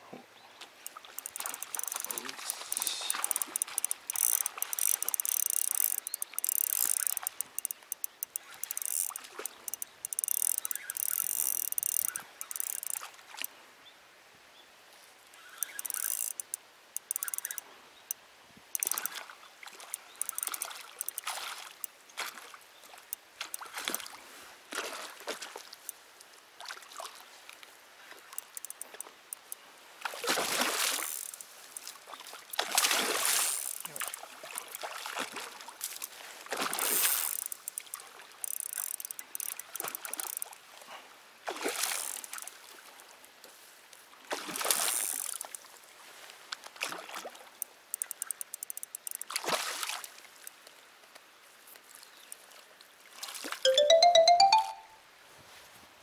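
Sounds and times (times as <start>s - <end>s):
high hiss with rapid clicking: 0.9s - 13.0s, 15.6s - 17.6s, 30.9s - 31.9s, 36.8s - 40.4s, 44.7s - 45.6s, 48.0s - 49.3s
water trickling: 0.9s - 13.1s, 15.4s - 17.6s.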